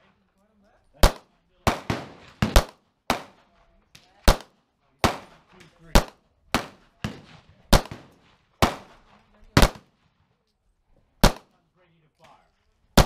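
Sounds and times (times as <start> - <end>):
pistol shots: 1.0 - 9.9, 11.2 - 11.5.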